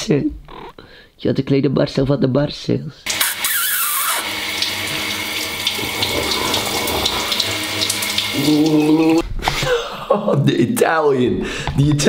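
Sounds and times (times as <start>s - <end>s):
shower water spraying on tiles: 3.1s - 9.2s.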